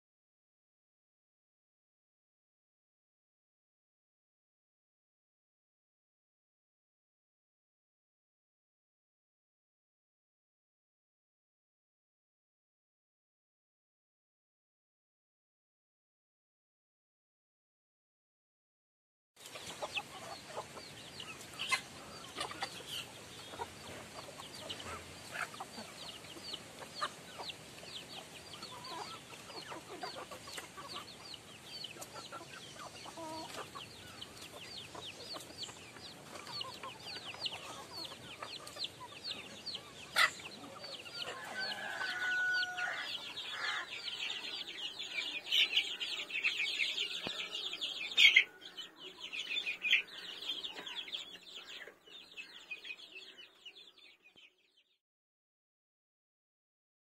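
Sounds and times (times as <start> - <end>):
chickens clucking: 19.4 - 54.7
chicks peeping: 19.4 - 55.0.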